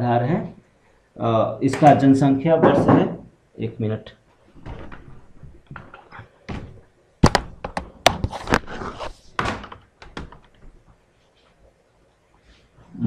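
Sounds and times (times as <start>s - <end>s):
knocks and thuds: 2.6s - 3.3s, 4.6s - 8.5s, 9.4s - 10.9s
rustling and shuffling: 4.2s - 13.0s.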